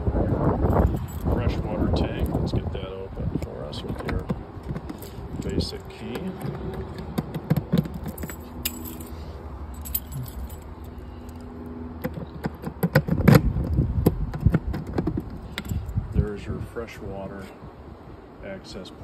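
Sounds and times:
keys jangling: 0.6s - 1.4s, 7.6s - 11.5s
key turning in lock: 4.0s - 9.1s.

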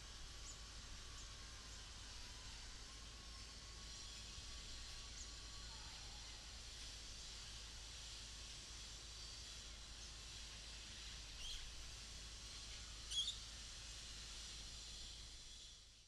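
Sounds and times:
faint outdoor hiss: 0.0s - 16.0s
small bird chirping: 13.1s - 13.4s.

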